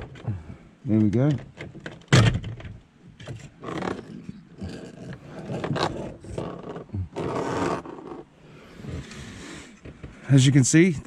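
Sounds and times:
plastic rubbing and scraping: 1.0 - 10.2.

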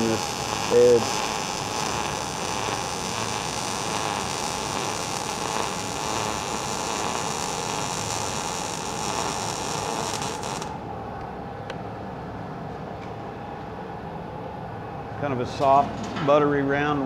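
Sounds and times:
welding arc sizzling: 0.0 - 10.8.

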